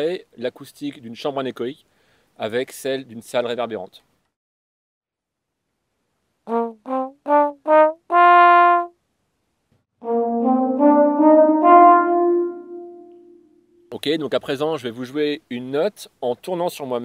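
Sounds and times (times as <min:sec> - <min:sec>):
trombone playing rising run: 0:10.0 - 0:13.6.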